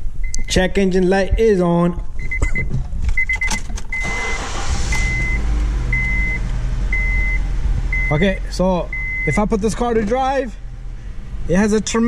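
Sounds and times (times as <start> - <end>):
car warning chime beeping: 2.2 - 9.6
car starter cranking: 3.1 - 9.7
car engine idling roughly: 4.0 - 11.2.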